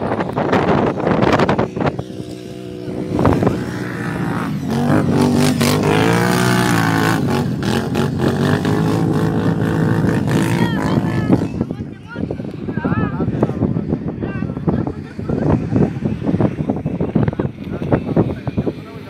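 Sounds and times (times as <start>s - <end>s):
off-road vehicle engine revving: 0.0s - 11.8s
wind on microphone: 0.0s - 19.0s.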